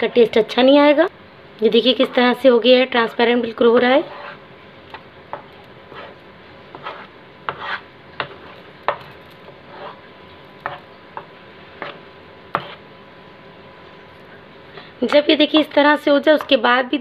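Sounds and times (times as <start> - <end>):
wooden spatula scraping steel pan: 1.9 - 4.5, 5.3 - 10.9, 11.8 - 12.9.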